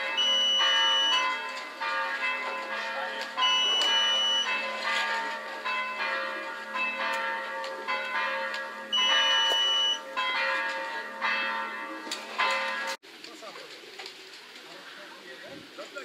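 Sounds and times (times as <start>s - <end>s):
bells ringing: 0.0s - 13.0s
steady high beep: 0.2s - 1.2s, 3.5s - 4.5s, 9.0s - 10.0s.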